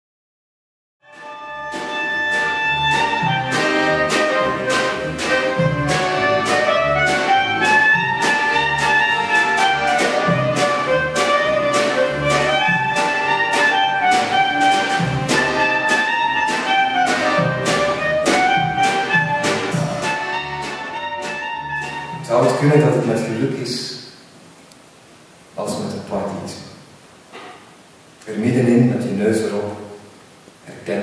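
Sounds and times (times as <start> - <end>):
soprano saxophone melody: 1.0 - 22.2
clarinet melody: 1.0 - 22.6
plucked double bass: 1.2 - 23.1
drum kit steady beat: 1.7 - 22.4.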